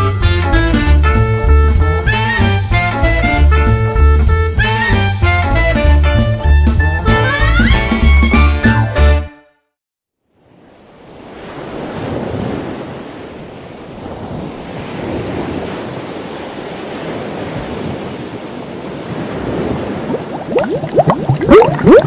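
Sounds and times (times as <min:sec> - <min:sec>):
rushing water underwater: 0:19.1 - 0:22.0
water bubbling: 0:19.8 - 0:22.0.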